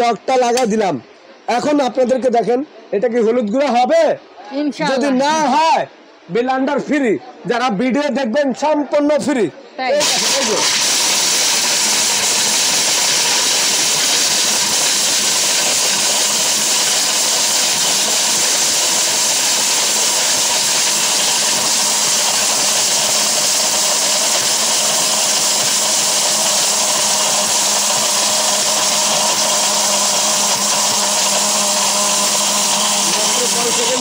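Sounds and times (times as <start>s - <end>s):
blender motor whirring: 9.9s - 34.0s.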